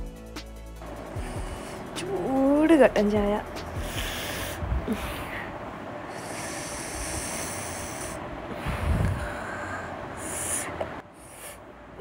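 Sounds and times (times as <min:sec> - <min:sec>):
wind buffeting microphone: 0:02.6 - 0:06.0, 0:06.9 - 0:09.6.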